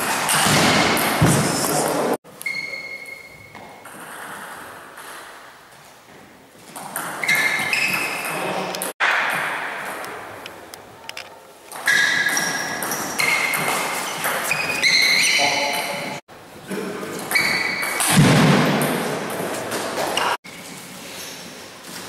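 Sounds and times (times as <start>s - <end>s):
shoe squeaks on floor: 2.4s - 3.8s, 7.2s - 8.6s, 11.7s - 16.2s, 17.2s - 18.0s, 20.0s - 20.4s.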